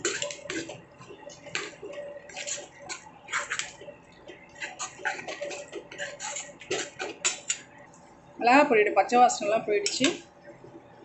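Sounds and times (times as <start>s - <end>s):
metal spoon scraping a pan: 0.0s - 7.7s.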